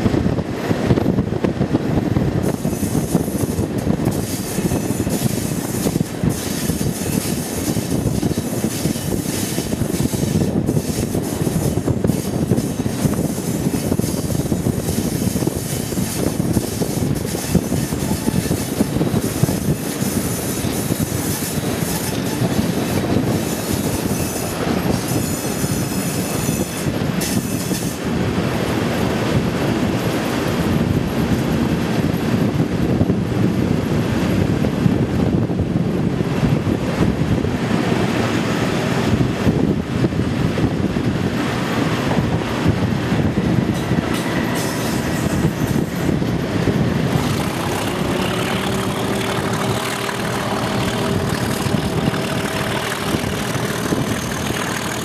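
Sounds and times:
diesel locomotive engine running: 0.0s - 55.0s
train wheel and rail noise: 0.0s - 55.0s
wheels squealing: 2.4s - 28.0s, 43.7s - 55.0s.

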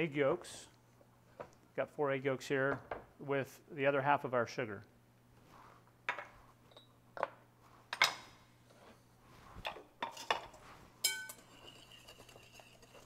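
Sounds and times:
kitchenware clinking: 10.0s - 13.0s
whisk mixing in glass bowl: 11.3s - 13.0s.

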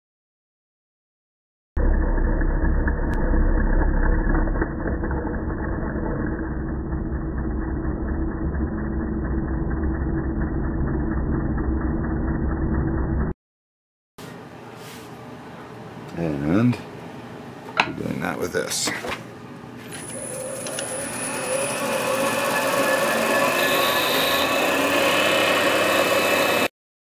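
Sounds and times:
turning tool scraping wood: 19.9s - 26.7s
wood lathe humming: 20.0s - 26.7s.

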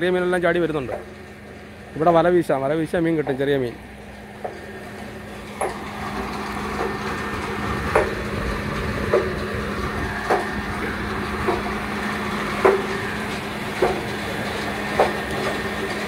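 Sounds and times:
water pump humming: 0.0s - 16.0s
regular knocking: 4.4s - 8.4s, 9.0s - 9.5s, 10.1s - 16.0s.

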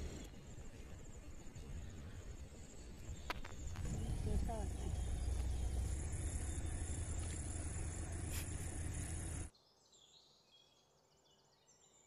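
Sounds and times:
low rumble and hiss: 0.0s - 9.5s
sweeping chirps: 0.0s - 9.5s
high-pitched insect drone: 3.3s - 9.5s.

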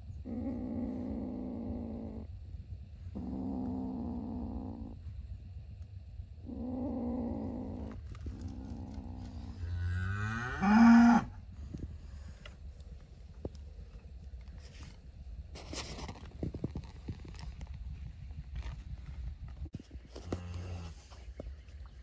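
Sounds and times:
animal low-pitched calls: 0.0s - 5.4s, 6.4s - 14.7s.

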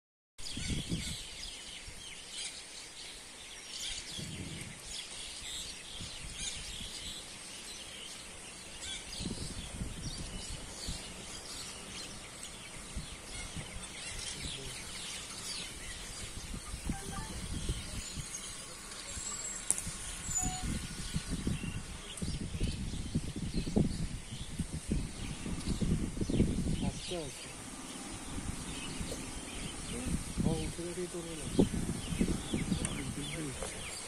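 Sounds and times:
birds chirping and calling: 0.4s - 34.0s
steady high hiss: 10.6s - 21.3s
low rumbles: 24.7s - 33.8s.

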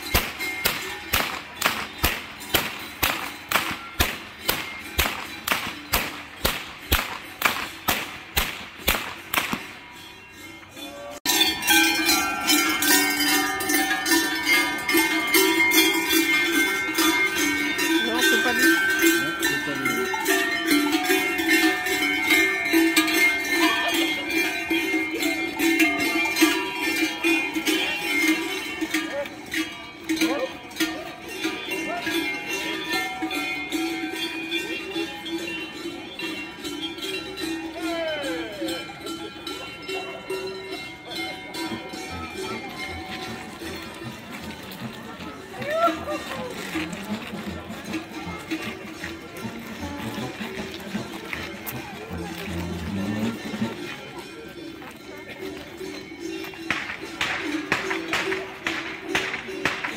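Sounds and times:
bell-like ringing: 0.0s - 7.9s, 9.1s - 59.9s
folk music with steady beat: 0.0s - 9.9s, 41.4s - 59.9s
whip cracking: 0.1s - 9.8s, 56.7s - 59.9s.

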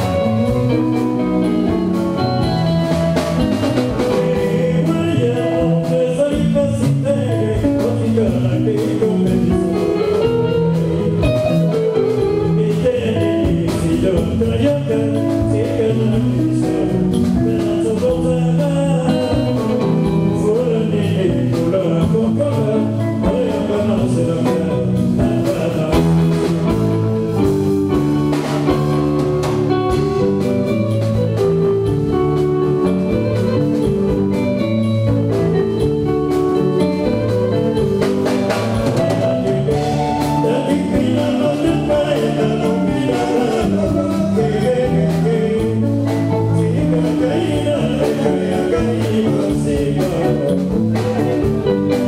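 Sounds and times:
bass guitar: 0.0s - 52.0s
drum kit: 0.0s - 52.0s
electric guitars: 0.0s - 52.0s
man singing: 3.1s - 52.0s.

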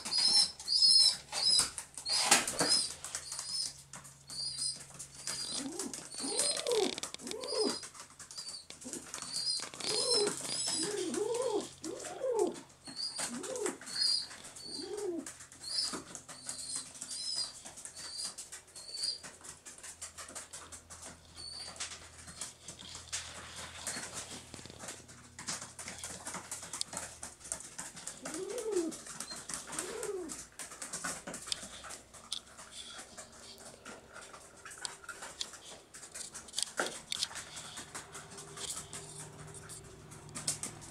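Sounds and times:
pigeon cooing: 0.0s - 32.0s
pigeon squab peeping: 0.0s - 40.9s.

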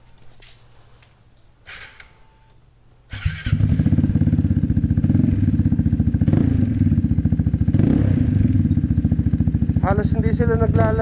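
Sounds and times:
scooter engine starting and idling: 3.1s - 11.0s.

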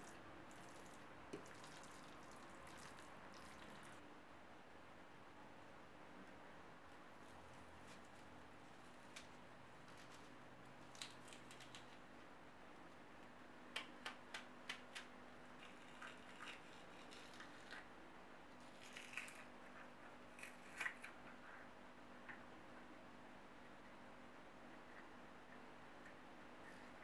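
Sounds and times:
onion layers cracking apart: 18.8s - 19.5s.

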